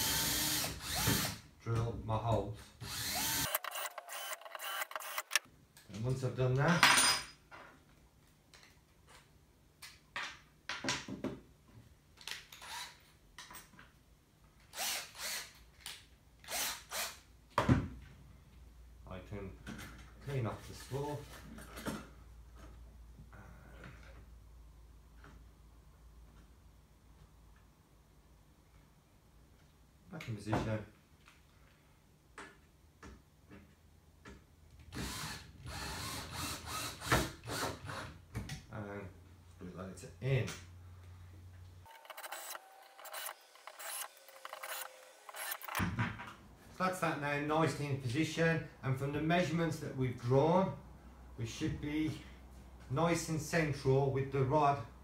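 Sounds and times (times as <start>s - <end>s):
cordless drill spinning: 0.0s - 1.4s, 2.8s - 5.5s, 12.5s - 13.0s, 14.7s - 15.6s, 16.4s - 17.2s, 34.9s - 38.1s, 41.9s - 45.8s.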